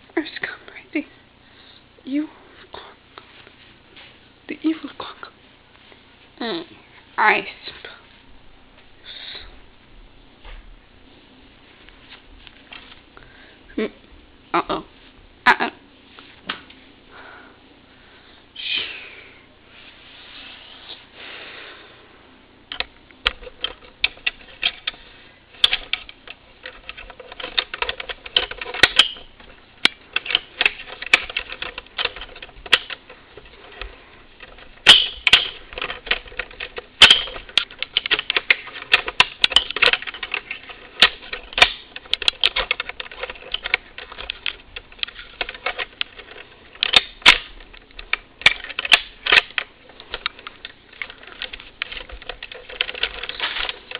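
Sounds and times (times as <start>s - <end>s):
rapid clicking and tapping: 25.6s - 53.9s.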